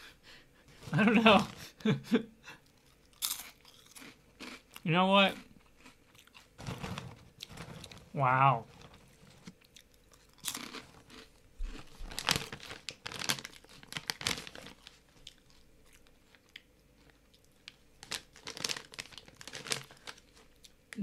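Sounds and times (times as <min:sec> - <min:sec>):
person chewing crunchy chips: 0:02.6 - 0:20.9.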